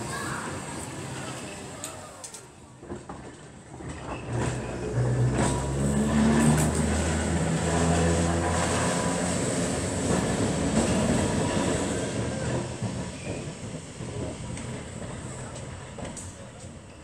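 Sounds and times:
electric tram motor hum: 3.8 - 16.8.

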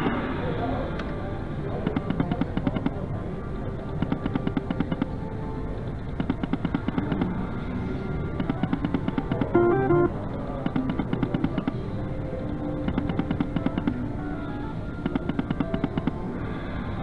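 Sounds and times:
steady background noise: 0.0 - 17.0
slot machine reels ticking: 4.0 - 5.2, 6.0 - 7.4, 8.4 - 11.9, 12.8 - 14.1, 15.0 - 16.2.

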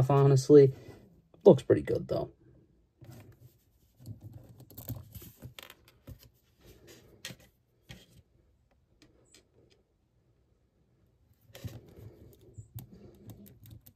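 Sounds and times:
small plastic clicks: 11.6 - 13.9.

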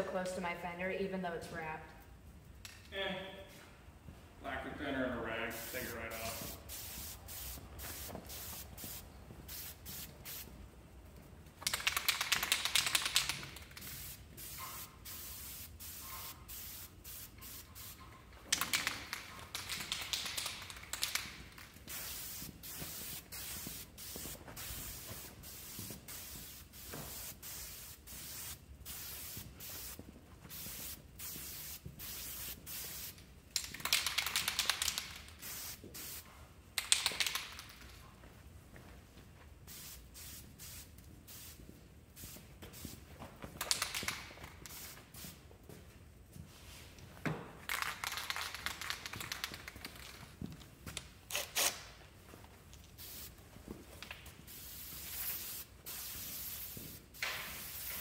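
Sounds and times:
spray paint can hissing: 5.5 - 10.6, 11.6 - 37.8, 39.7 - 43.0, 43.6 - 45.5, 47.7 - 50.2, 52.8 - 53.4, 54.2 - 58.0
spray can clicks: 11.6 - 36.2, 36.8 - 37.9, 43.6 - 45.4, 47.7 - 50.2, 54.0 - 58.0.

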